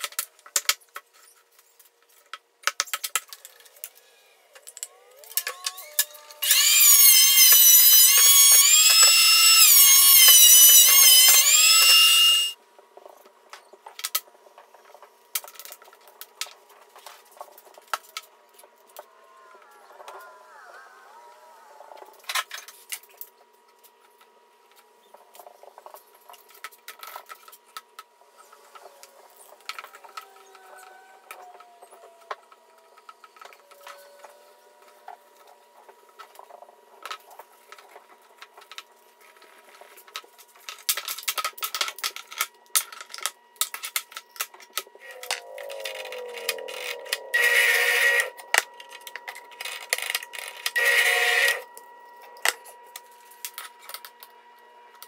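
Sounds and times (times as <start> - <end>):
drill press boring into wood: 5.8 - 12.6, 49.6 - 51.6.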